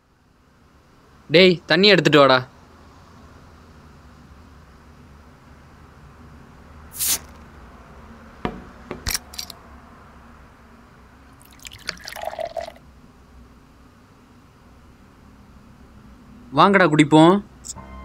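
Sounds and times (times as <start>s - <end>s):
bottles knocking on tiled floor: 8.4s - 9.1s
water pouring into a cup: 11.4s - 12.8s.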